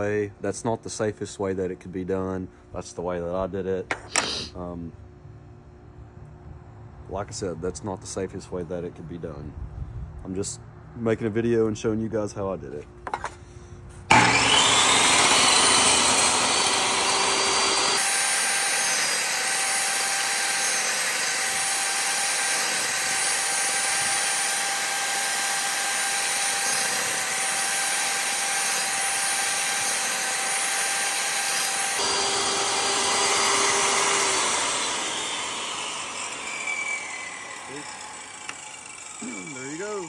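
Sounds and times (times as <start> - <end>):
table saw cutting wood: 4.1 - 4.5, 14.1 - 40.0.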